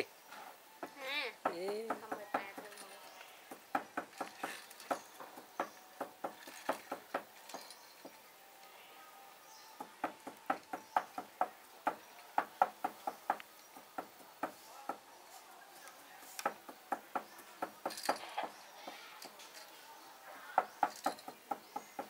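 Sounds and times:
chopping on a wooden block: 0.8 - 2.7, 3.5 - 7.3, 9.8 - 15.0, 16.4 - 18.6, 20.6 - 22.0.

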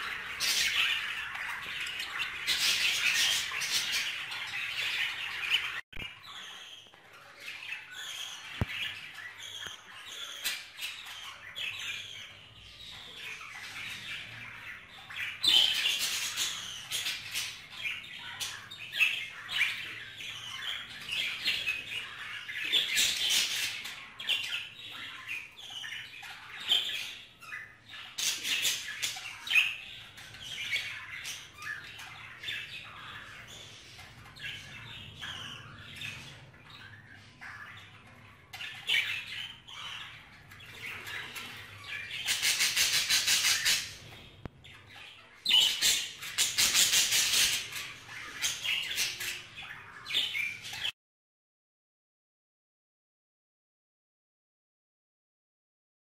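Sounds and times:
budgerigars chattering: 0.0 - 50.9.

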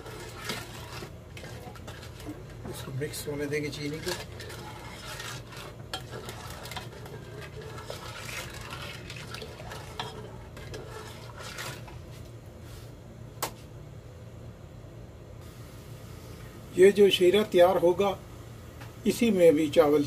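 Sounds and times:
ladle scraping and knocking pot: 0.0 - 12.2
low steady hum: 0.0 - 20.0.

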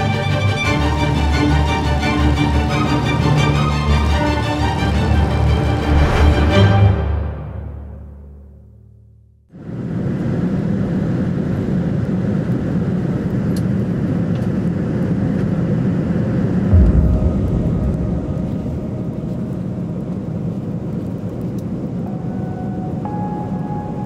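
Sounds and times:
airliner cabin jet engine rush: 9.6 - 22.0
low thump: 16.7 - 20.4.

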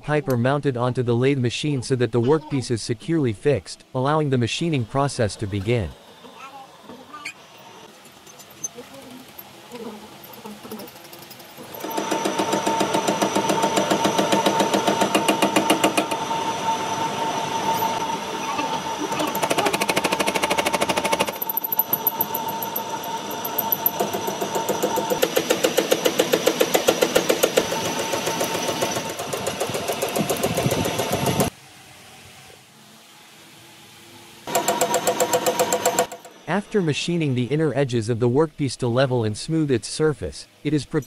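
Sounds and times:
metal lathe running: 10.2 - 31.5, 34.5 - 36.4.

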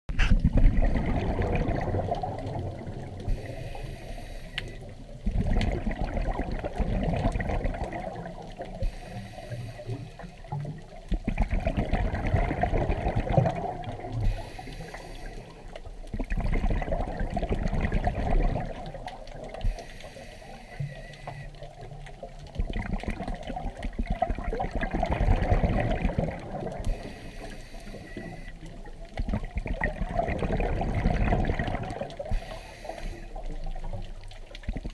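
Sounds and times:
exhaled bubbles rushing: 0.2 - 3.5, 4.8 - 9.0, 9.8 - 14.3, 15.4 - 19.8, 21.6 - 27.2, 28.1 - 32.6
regulator inhale hiss: 3.2 - 4.9, 8.7 - 10.5, 14.2 - 15.8, 19.6 - 21.6, 26.8 - 28.7, 32.2 - 33.6.

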